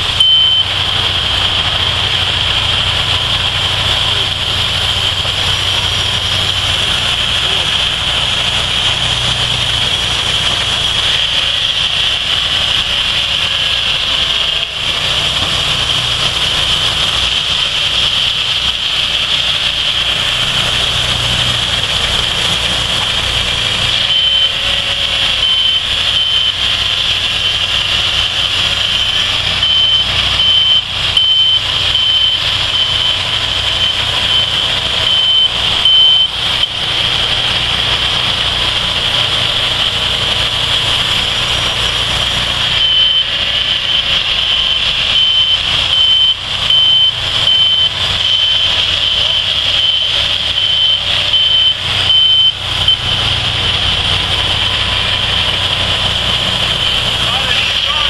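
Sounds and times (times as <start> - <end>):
bandsaw sawmills cutting logs: 0.0 - 58.0
backup alarm beeping: 0.2 - 1.1, 23.9 - 28.1, 28.8 - 36.8, 42.4 - 53.7.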